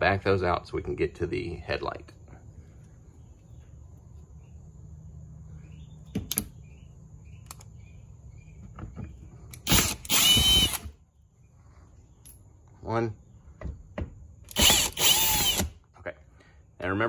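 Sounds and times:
cordless drill motor whining: 9.6s - 10.9s, 14.5s - 15.7s.

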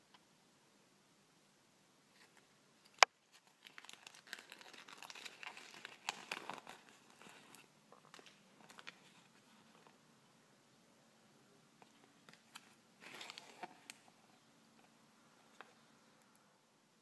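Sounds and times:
paper crinkling: 2.1s - 10.0s, 11.8s - 14.2s.

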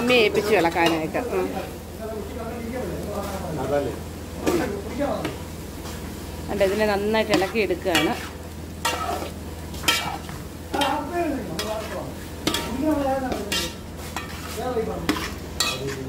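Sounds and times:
light frying sizzle: 0.0s - 16.0s
metal spatula scraping pot: 5.8s - 16.0s.

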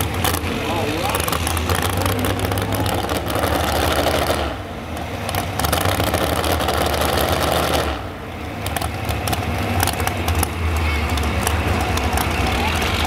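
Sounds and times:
truck engine idling unevenly: 0.0s - 13.0s.

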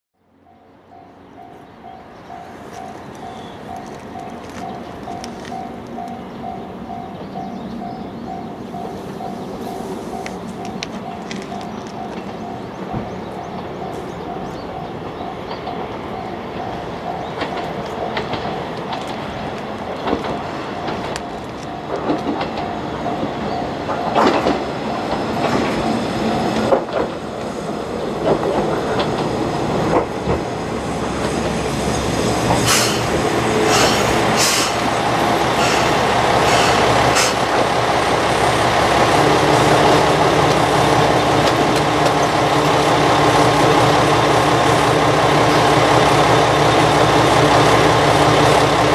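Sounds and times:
train wheels clacking over joints: 10.1s - 27.5s, 32.5s - 37.8s.

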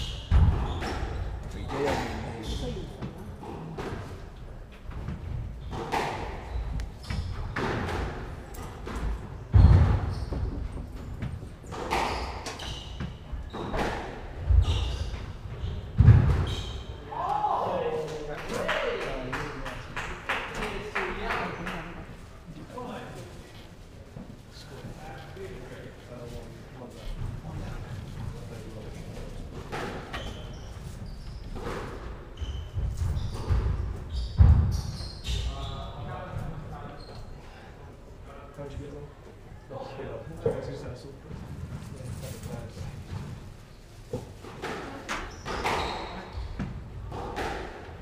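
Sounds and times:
court shoes squeaking: 0.0s - 17.1s, 29.0s - 37.6s, 41.4s - 48.0s
squash ball striking racket and walls: 0.1s - 2.3s, 4.9s - 17.0s, 29.5s - 35.4s, 44.1s - 48.0s.

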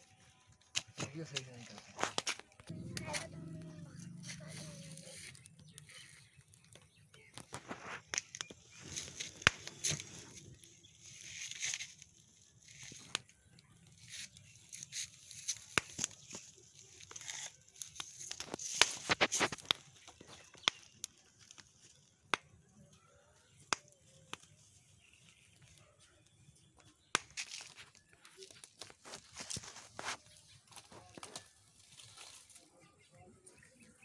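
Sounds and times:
maize cobs rustling: 0.3s - 22.0s, 27.2s - 33.1s
wood fire crackling and popping: 0.6s - 22.6s, 27.1s - 32.3s.

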